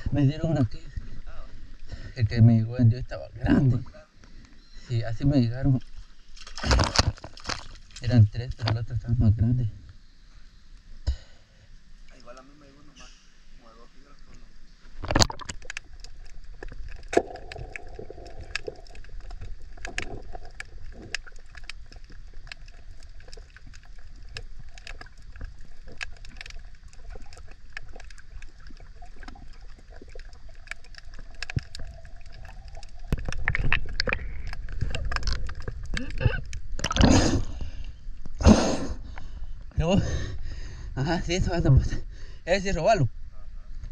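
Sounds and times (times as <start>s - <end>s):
water sloshing: 5.8s - 8.7s, 13.9s - 38.4s
small crackling clicks: 14.2s - 37.0s.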